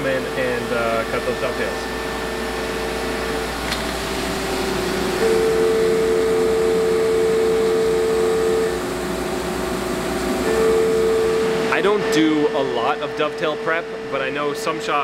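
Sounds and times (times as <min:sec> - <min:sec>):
milling machine cutting tone: 0:00.0 - 0:15.0.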